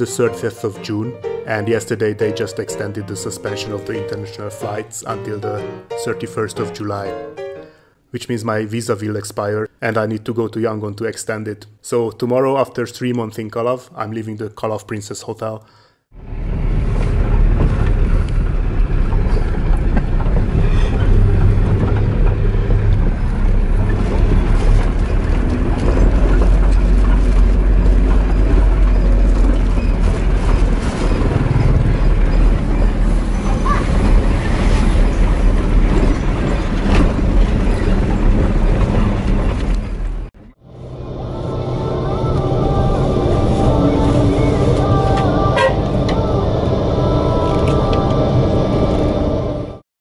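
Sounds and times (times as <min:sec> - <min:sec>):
vehicle engine and road rumble: 0:16.2 - 0:49.8.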